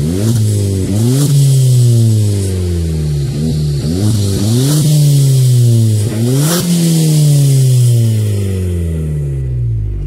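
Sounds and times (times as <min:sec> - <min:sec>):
car engine revving: 0:00.0 - 0:10.0.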